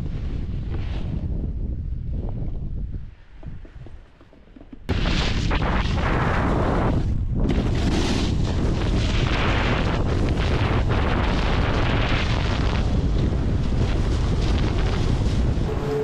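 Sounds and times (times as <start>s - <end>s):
wind rushing over microphone: 0.0s - 4.2s, 4.8s - 16.0s
snowboard scraping over hard snow: 5.6s - 16.0s.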